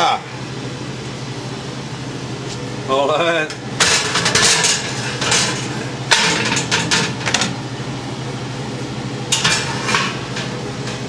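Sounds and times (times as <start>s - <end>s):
steady hum: 0.0s - 11.0s
metal oven rack clanking: 9.3s - 11.0s.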